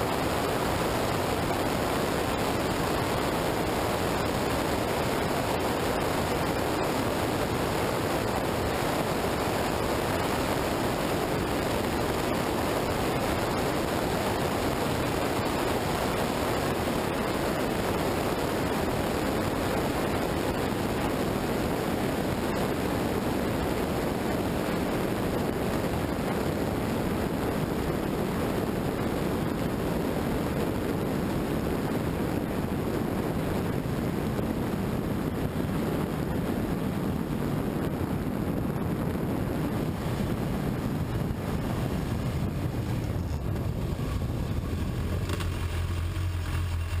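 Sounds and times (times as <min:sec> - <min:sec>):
steady low hum: 0:00.0 - 0:47.0
wind rush: 0:00.0 - 0:47.0.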